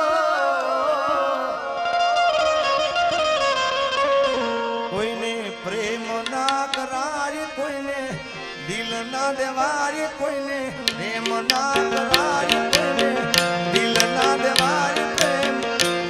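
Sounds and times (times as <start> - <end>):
harmonium tones: 0.1 - 16.0
hand drum strokes: 6.3 - 6.8, 10.9 - 16.0
sliding melody: 10.9 - 16.0.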